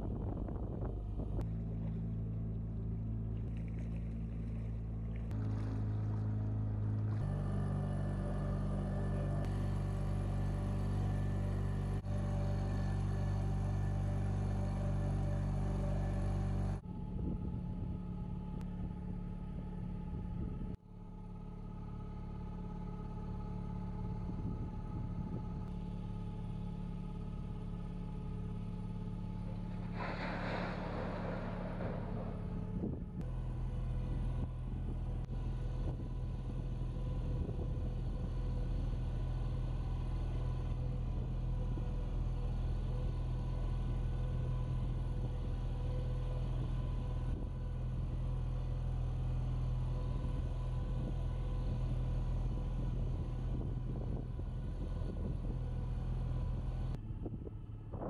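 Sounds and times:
boat engine droning: 0:00.0 - 0:58.0
hiss: 0:29.7 - 0:33.2.

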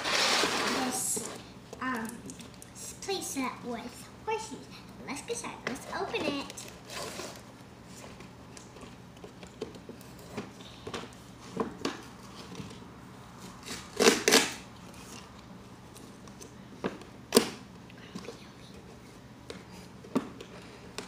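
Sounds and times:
cardboard box rustling and scraping: 0:00.0 - 0:01.3.

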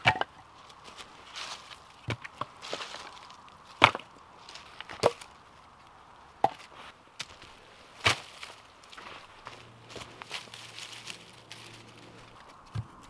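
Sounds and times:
axe chopping wood: 0:00.0 - 0:00.3, 0:03.8 - 0:04.1.

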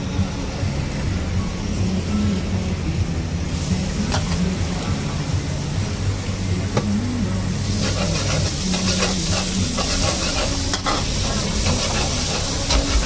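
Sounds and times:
steady low hum: 0:00.0 - 0:13.0
noodles sizzling in wok: 0:07.4 - 0:13.0
metal ladle scraping wok: 0:07.6 - 0:13.0.

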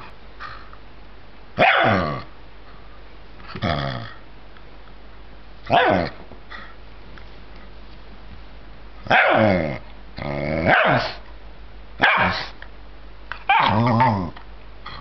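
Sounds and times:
dog growling barks: 0:01.6 - 0:02.3, 0:05.7 - 0:06.2, 0:09.0 - 0:11.2, 0:12.0 - 0:12.6, 0:13.5 - 0:15.0.

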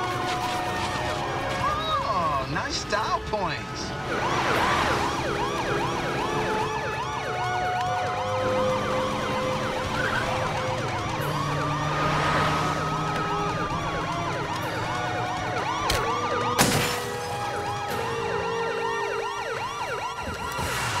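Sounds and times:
police sirens yelping: 0:00.0 - 0:21.0
low traffic rumble: 0:03.7 - 0:16.2.

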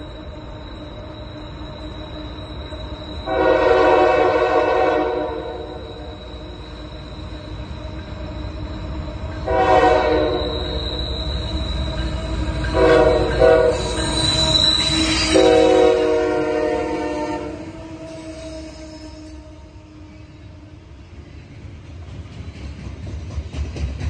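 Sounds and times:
locomotive engines rumbling: 0:00.0 - 0:20.2
locomotive air horn blasts: 0:03.2 - 0:06.1, 0:09.4 - 0:10.8, 0:12.7 - 0:14.0, 0:15.0 - 0:19.9.

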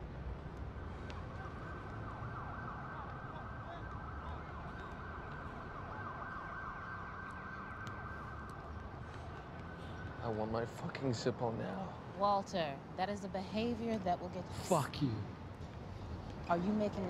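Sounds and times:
siren wailing: 0:00.8 - 0:10.8.

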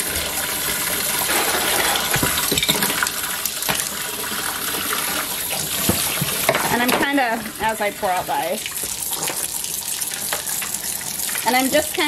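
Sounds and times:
tap water pouring into pot: 0:00.0 - 0:12.0.

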